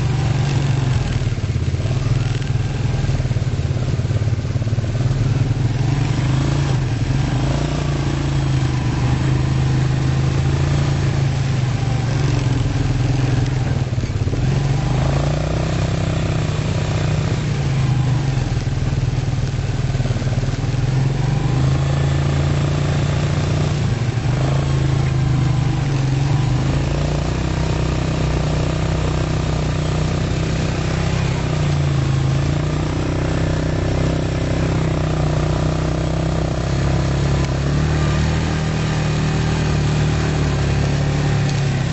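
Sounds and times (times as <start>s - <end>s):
quad bike engines revving: 0.0s - 41.9s.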